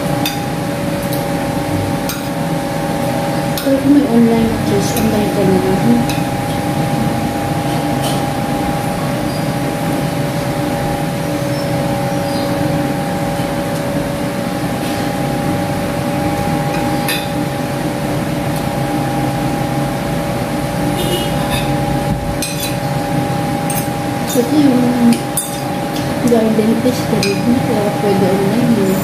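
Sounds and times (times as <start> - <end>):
two-tone machine hum: 0.0 - 29.0
cutlery clinking on plates: 21.4 - 21.8, 22.4 - 22.8.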